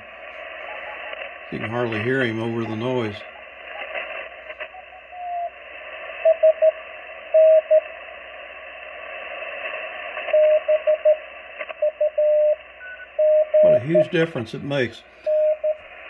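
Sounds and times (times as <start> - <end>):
radio band noise hiss: 0.0 - 16.0
morse code beeps: 10.3 - 11.2, 11.8 - 15.8.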